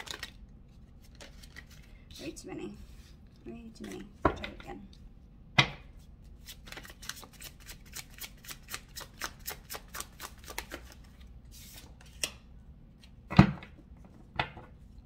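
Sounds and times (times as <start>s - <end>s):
cards being shuffled: 0.0s - 1.9s, 6.4s - 12.4s.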